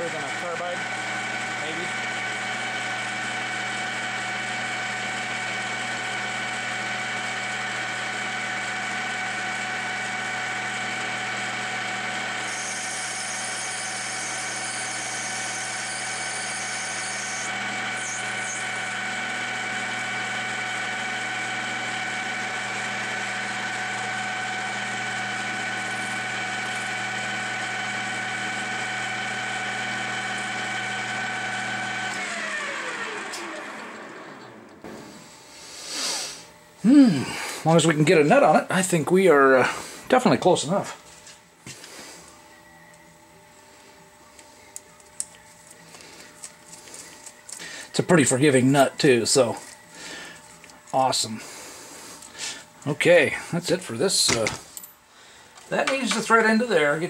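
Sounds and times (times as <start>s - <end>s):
motor winding down: 0.0s - 34.9s
lathe motor whine and hum: 0.0s - 35.5s, 36.5s - 54.3s, 55.6s - 57.0s
high cutting hiss: 35.5s - 36.5s.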